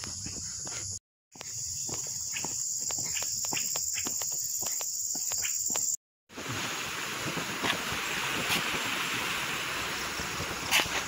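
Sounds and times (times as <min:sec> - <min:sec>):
footsteps on road: 0:00.0 - 0:06.0
insects buzzing: 0:00.0 - 0:06.0.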